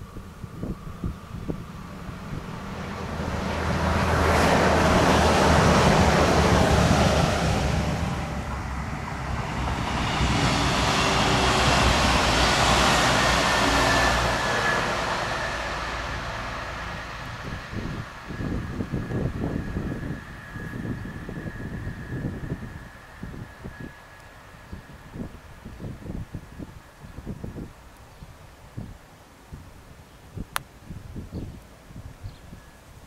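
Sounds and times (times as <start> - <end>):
train wheels rumbling on rails: 0.0 - 26.6.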